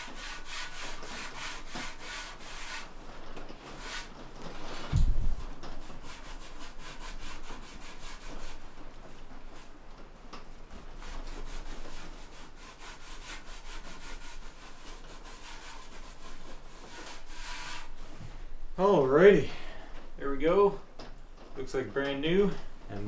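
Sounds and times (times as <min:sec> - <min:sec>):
pad scrubbing steel pipe: 0:00.0 - 0:02.9, 0:11.0 - 0:18.2.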